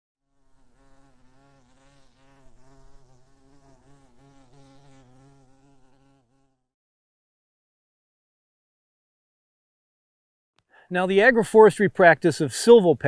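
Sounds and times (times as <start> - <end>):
bee buzzing: 0.3 - 6.7.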